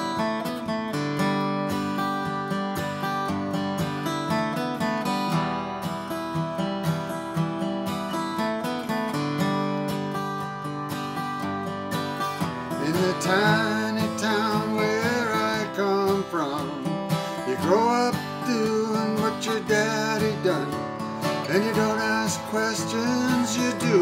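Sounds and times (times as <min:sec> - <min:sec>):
acoustic guitar strummed: 0:00.0 - 0:24.0
man singing: 0:12.7 - 0:24.0.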